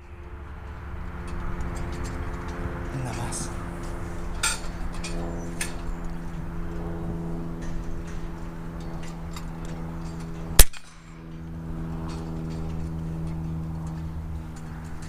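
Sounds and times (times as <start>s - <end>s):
steady low hum: 0.0s - 15.0s
air rifle shot: 10.6s - 11.0s.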